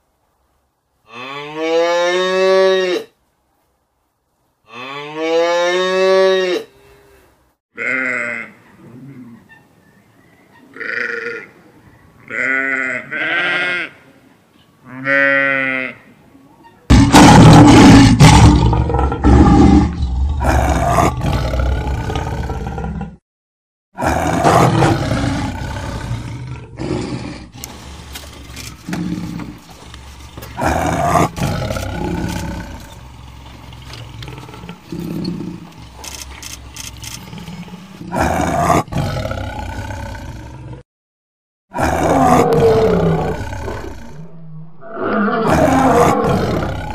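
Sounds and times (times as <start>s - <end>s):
short bleating calls: 7.8s - 8.6s, 10.7s - 11.5s, 12.2s - 14.0s, 14.8s - 16.1s
big cat roaring and growling: 16.9s - 23.2s, 24.0s - 27.7s, 30.6s - 33.1s, 37.2s - 40.8s, 41.7s - 46.9s.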